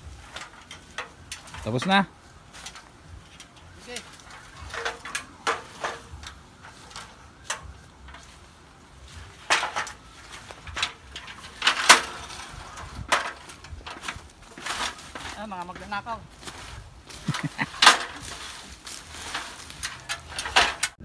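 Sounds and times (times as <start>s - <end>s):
ladder knocking and clattering: 0.0s - 21.0s
leafy plants rustling: 0.0s - 21.0s.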